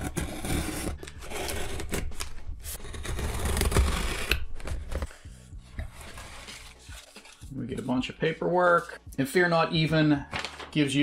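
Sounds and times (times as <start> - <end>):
packing tape being slit and pulled: 0.0 - 5.1.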